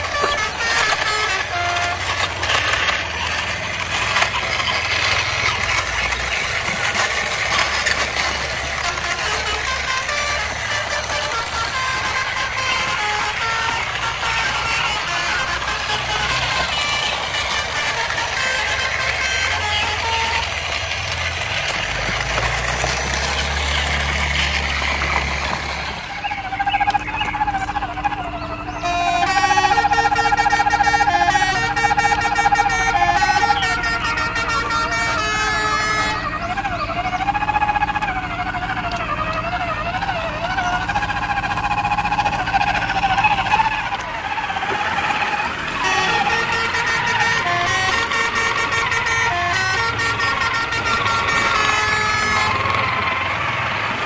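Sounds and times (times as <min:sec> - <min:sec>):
engine humming: 0:00.0 - 0:54.0
toy truck motor whining: 0:00.0 - 0:54.0.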